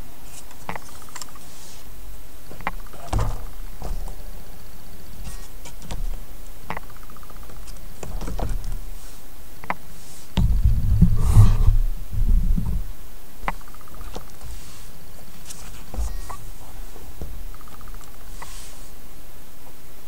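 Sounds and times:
low rumbling handling thud: 2.4s - 9.1s, 10.4s - 18.1s.

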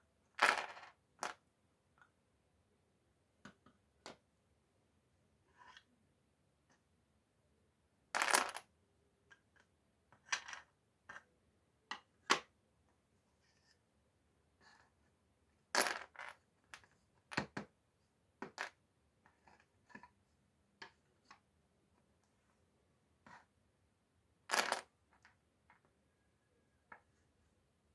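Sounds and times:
puzzle pieces clattering onto table: 0.4s - 1.3s, 8.2s - 8.6s, 15.8s - 16.4s, 24.5s - 24.9s.

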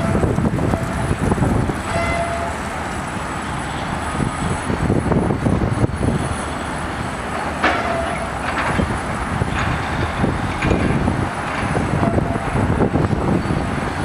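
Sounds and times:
crane rumbling and clattering: 0.0s - 14.0s
metal squeal: 1.8s - 2.7s, 7.6s - 8.9s.

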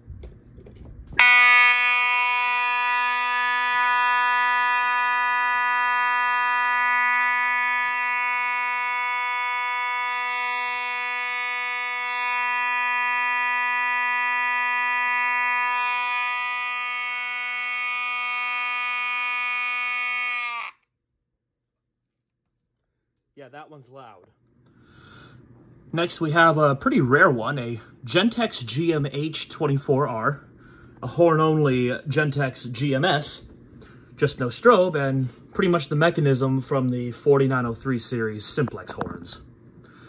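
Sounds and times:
fire alarm horn tone: 1.2s - 20.7s.

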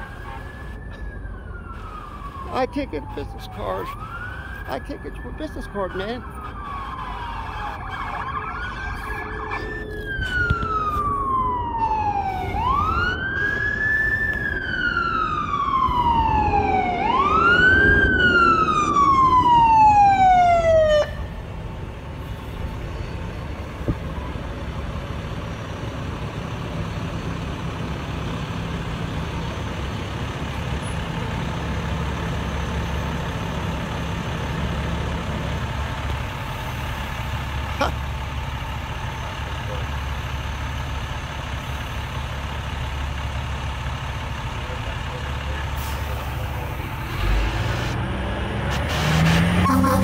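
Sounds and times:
fire engine siren wailing: 0.0s - 50.0s
truck engine running: 21.2s - 48.0s.

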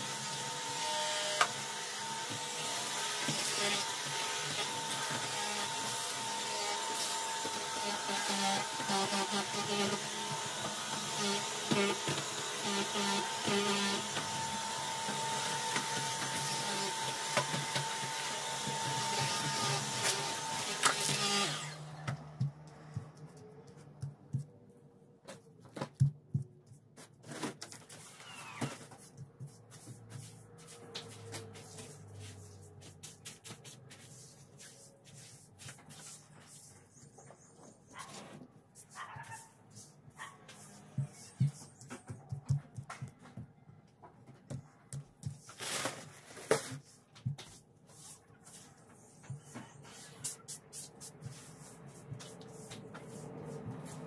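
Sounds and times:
stick vacuum cleaner running: 0.0s - 22.2s.

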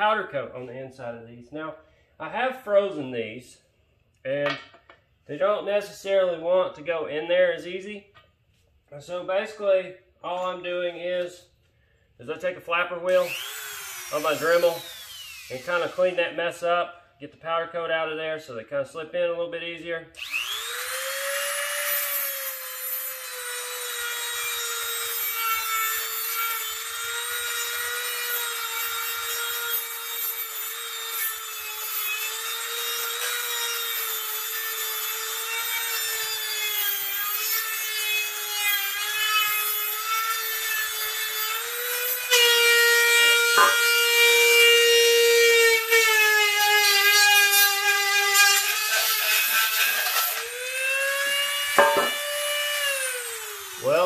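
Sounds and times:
rotary tool sanding metal: 13.1s - 16.2s, 20.2s - 54.0s.

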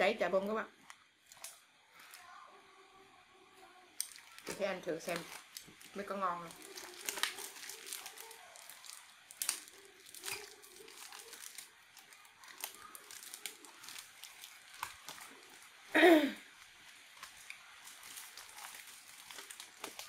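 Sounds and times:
crackers crunching: 0.8s - 2.3s, 3.9s - 20.0s
plastic bag crinkling: 4.0s - 20.0s.

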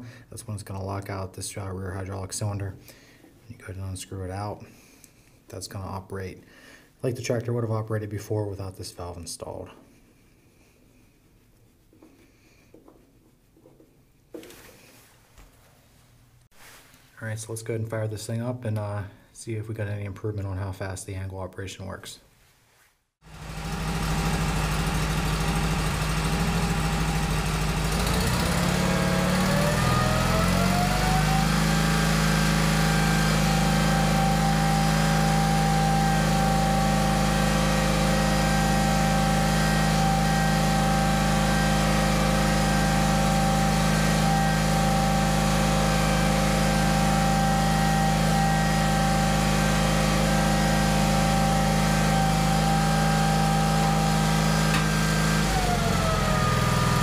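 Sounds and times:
garden tractor engine revving: 23.2s - 57.0s.

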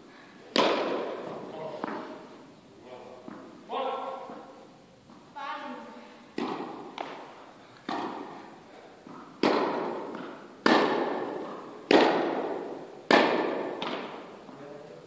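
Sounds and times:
tennis ball struck by rackets: 0.5s - 2.2s, 6.3s - 14.4s
tennis ball bouncing: 0.5s - 2.3s, 3.2s - 3.6s, 4.3s - 5.3s, 6.3s - 14.6s.

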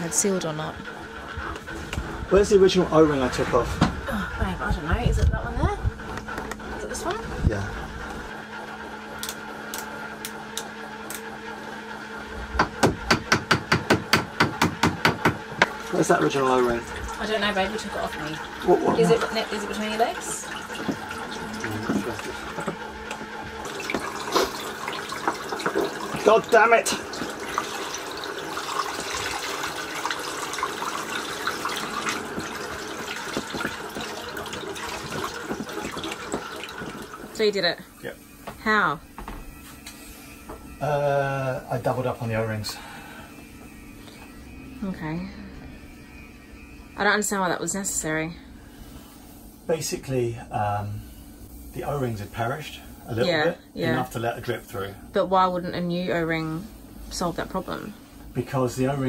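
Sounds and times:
steady low hum: 0.0s - 59.0s
running water: 15.6s - 38.2s.

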